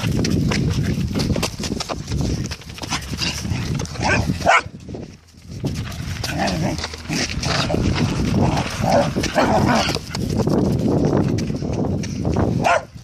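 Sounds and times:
footsteps scuffing on dirt: 0.0 - 13.0
dog growling and yapping: 6.2 - 10.0.

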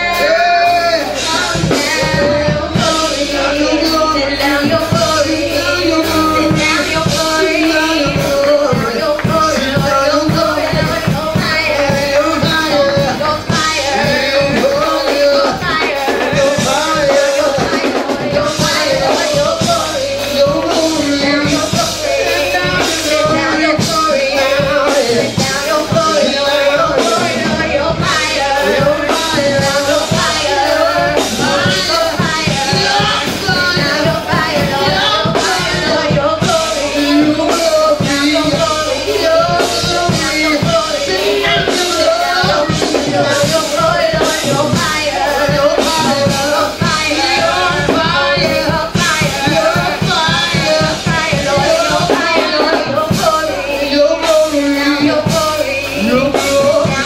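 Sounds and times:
gospel band playing: 0.0 - 57.0
steady drum beat: 0.0 - 57.0
woman singing into a microphone: 0.0 - 57.0.

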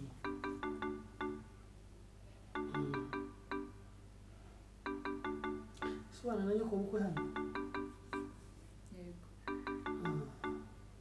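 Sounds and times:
marimba-like notes: 0.0 - 1.6, 2.6 - 3.9, 4.9 - 6.2, 7.1 - 8.4, 9.5 - 10.8
low steady hum: 0.0 - 11.0.

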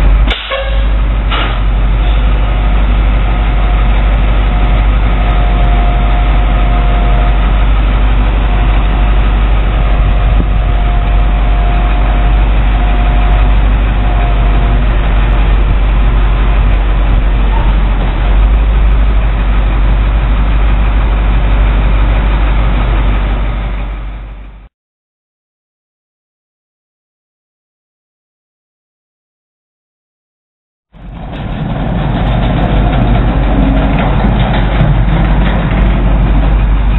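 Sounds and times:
diesel truck engine idling: 0.0 - 24.7.

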